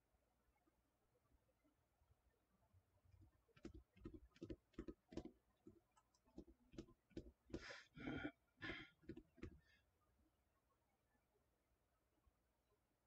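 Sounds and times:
faint light clicks and taps: 0:03.2 - 0:07.8.

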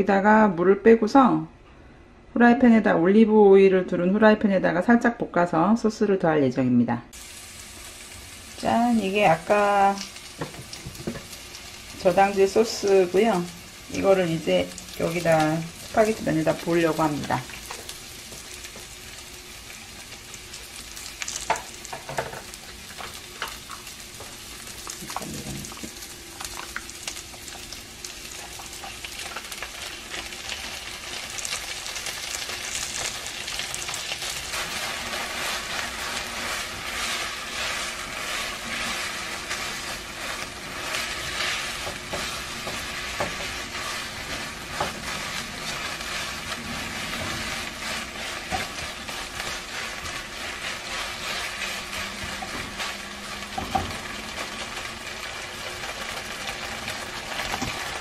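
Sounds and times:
pasta sizzling in a frying pan: 0:07.1 - 0:58.0
spatula stirring and tossing: 0:21.0 - 0:58.0.

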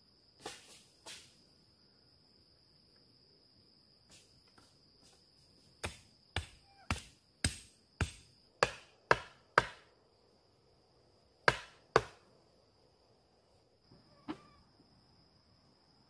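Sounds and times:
axe chopping wood: 0:05.8 - 0:09.9, 0:11.5 - 0:12.2.

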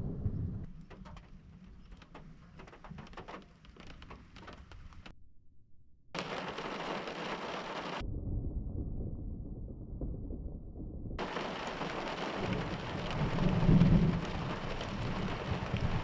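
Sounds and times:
low thunder rumble: 0:00.0 - 0:01.9, 0:06.2 - 0:16.0
raindrops ticking: 0:00.7 - 0:05.1, 0:06.2 - 0:08.0, 0:11.2 - 0:16.0
rushing hiss of rain: 0:06.2 - 0:08.0, 0:11.2 - 0:16.0.

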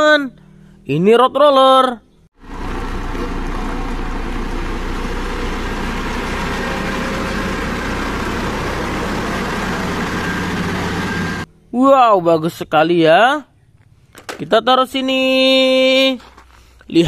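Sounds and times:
diesel engine humming: 0:02.4 - 0:11.6.

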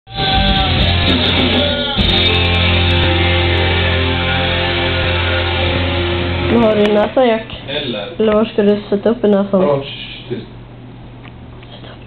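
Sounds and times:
loud distorted rock music: 0:00.1 - 0:06.8
low bass note: 0:02.2 - 0:07.4.

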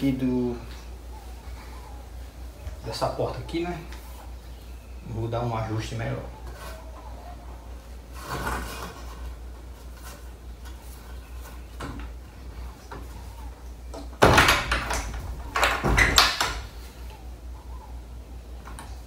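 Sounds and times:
door bumping and rattling: 0:14.2 - 0:16.8
steady low hum: 0:14.8 - 0:19.0.

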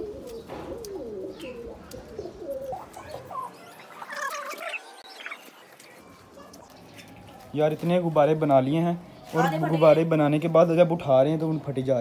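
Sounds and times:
pigeons cooing: 0:00.0 - 0:07.6.

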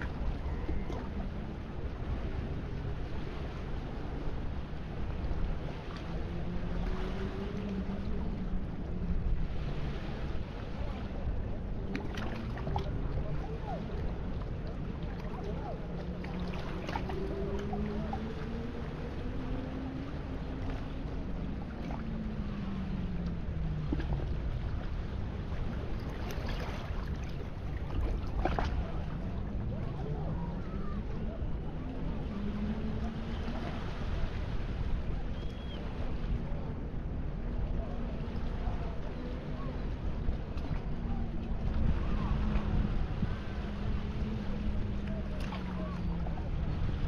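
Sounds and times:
distant boat engine hum: 0:00.0 - 0:47.0
faint low drone: 0:00.0 - 0:47.0
wind rumbling on microphone: 0:00.0 - 0:47.0
waves lapping on rocks: 0:20.4 - 0:31.7.

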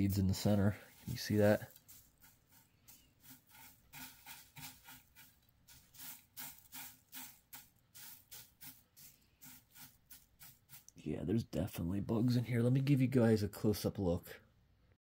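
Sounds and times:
dry flakes crackling under fingers: 0:00.1 - 0:11.0.

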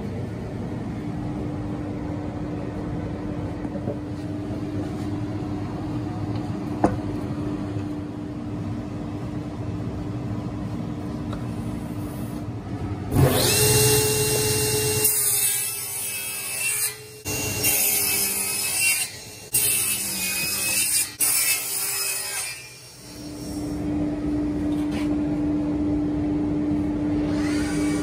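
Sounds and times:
table saw cutting wood: 0:13.1 - 0:23.8, 0:27.2 - 0:28.0.

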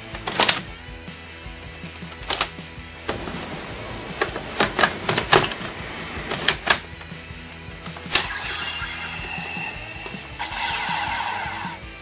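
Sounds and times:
toy electronic sound effect: 0:08.2 - 0:11.8.

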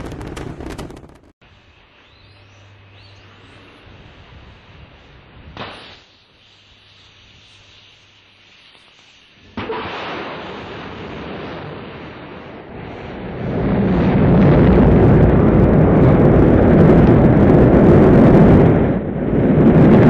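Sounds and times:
rocket engines rumbling: 0:09.4 - 0:20.0.

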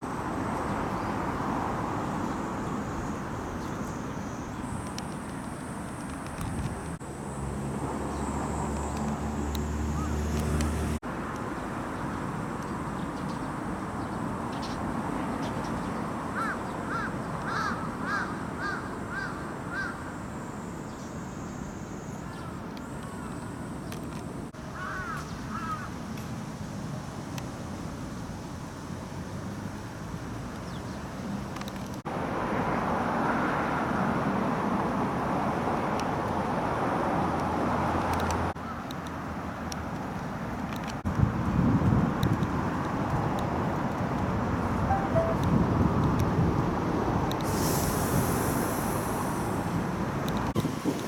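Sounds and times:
distant traffic hum: 0:00.0 - 0:51.0
bird calling: 0:09.8 - 0:10.3.

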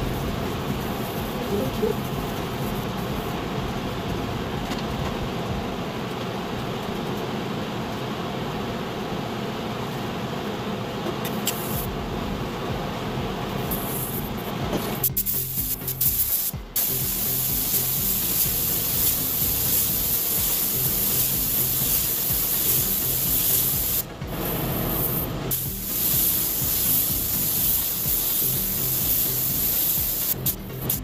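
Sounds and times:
paint spray gun hissing: 0:11.2 - 0:11.9, 0:13.7 - 0:14.4, 0:15.0 - 0:31.0.

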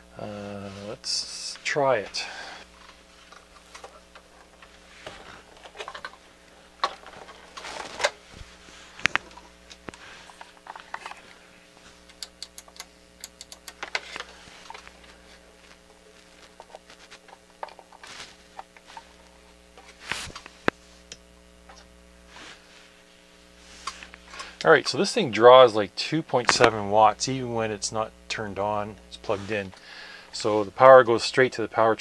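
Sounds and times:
faint steady hum: 0:00.0 - 0:32.0
small ticks: 0:12.1 - 0:14.0.

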